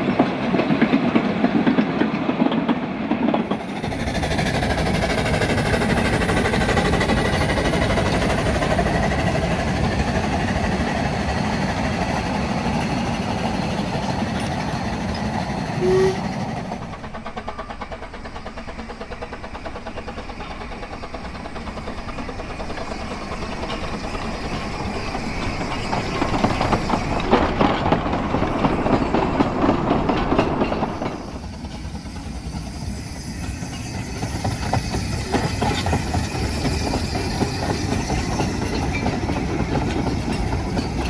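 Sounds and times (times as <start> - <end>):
steam train running past: 0.0 - 41.0
wheels clicking over rail joints: 0.0 - 41.0.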